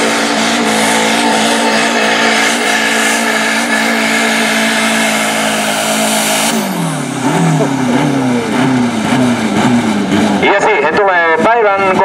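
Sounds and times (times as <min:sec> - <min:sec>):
tractor engine running hard: 0:00.0 - 0:12.0.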